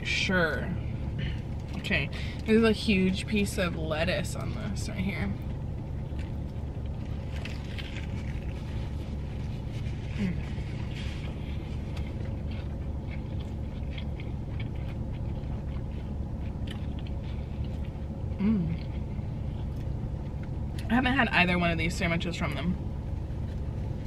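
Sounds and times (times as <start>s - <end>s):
car air conditioner humming: 0.0s - 24.0s
person chewing sandwich: 0.9s - 2.5s, 5.4s - 20.9s, 22.8s - 24.0s
person humming mm: 18.4s - 18.9s.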